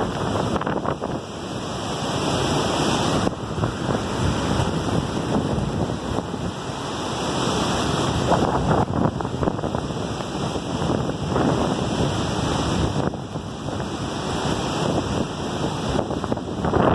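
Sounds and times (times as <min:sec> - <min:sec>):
waterfall rushing: 0:00.0 - 0:16.9
wind buffeting microphone: 0:00.0 - 0:16.9.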